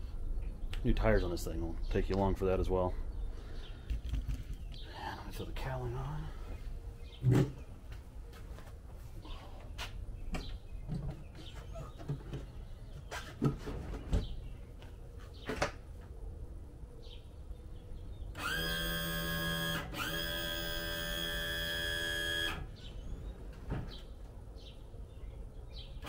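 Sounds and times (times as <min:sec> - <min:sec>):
electric trim pump whine: 0:18.3 - 0:22.8.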